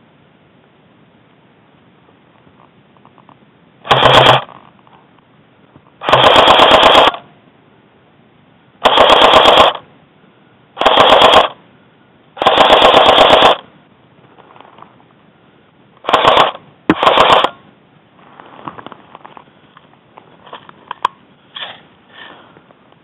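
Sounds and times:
airsoft rifle rapid bursts: 0:03.9 - 0:04.5, 0:06.0 - 0:07.2, 0:08.8 - 0:09.8, 0:10.8 - 0:11.6, 0:12.4 - 0:13.6, 0:16.0 - 0:17.6.

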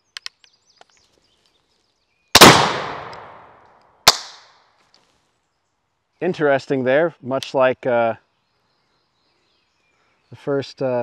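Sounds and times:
shotgun shot echoing: 0:02.4 - 0:04.4.

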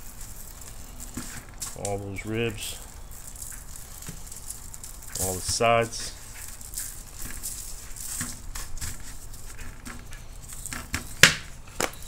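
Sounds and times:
foil crinkling: 0:00.0 - 0:12.0.

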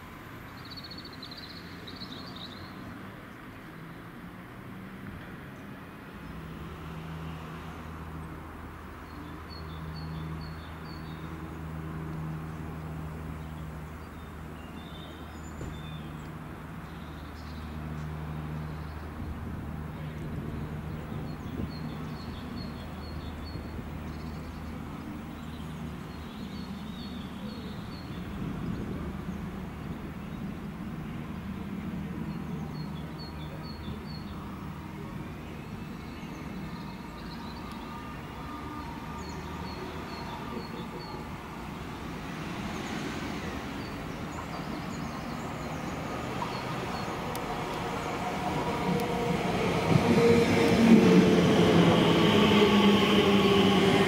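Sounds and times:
train rumble: 0:17.8 - 0:54.0.

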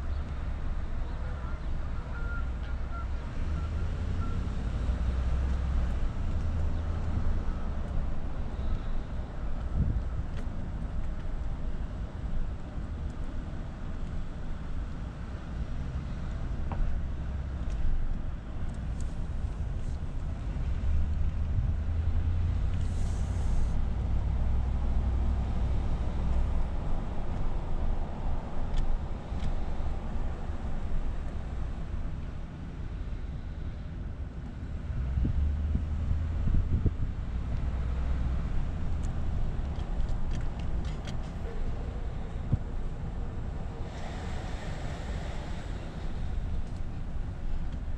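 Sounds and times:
low outdoor rumble: 0:00.0 - 0:47.9
wind buffeting microphone: 0:35.0 - 0:47.9.

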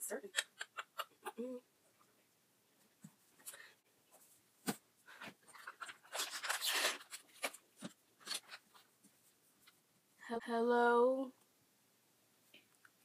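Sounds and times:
packaging wrapper crinkling: 0:05.6 - 0:07.6.

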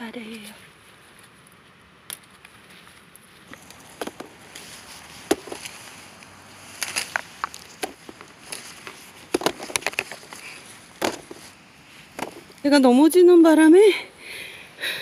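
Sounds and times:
fruits dropping into wicker basket: 0:03.5 - 0:12.6.

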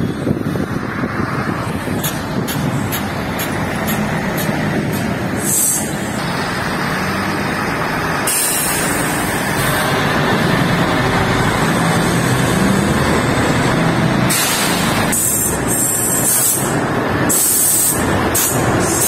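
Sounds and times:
diesel engines idling: 0:00.0 - 0:19.0
hiss: 0:05.4 - 0:06.0, 0:08.2 - 0:09.3, 0:14.3 - 0:19.0.

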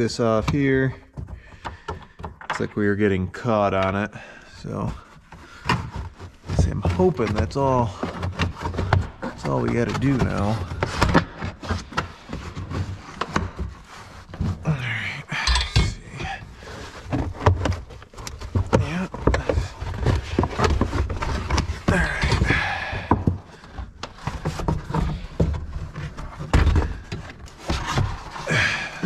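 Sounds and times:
carpeted trim rustling and scraping: 0:02.8 - 0:22.6, 0:23.4 - 0:29.0.

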